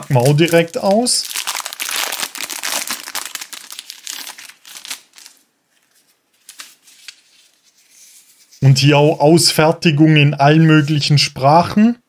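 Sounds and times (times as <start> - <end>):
plastic bag crinkling: 0.0 - 7.6
paper rustling: 0.0 - 8.8.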